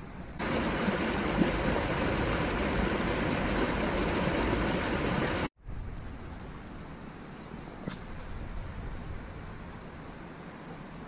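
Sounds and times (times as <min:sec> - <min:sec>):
river rushing over rocks: 0:00.4 - 0:05.5.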